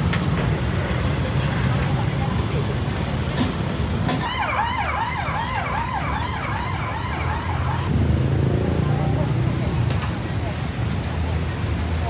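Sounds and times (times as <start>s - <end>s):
siren yelping: 4.2s - 7.9s.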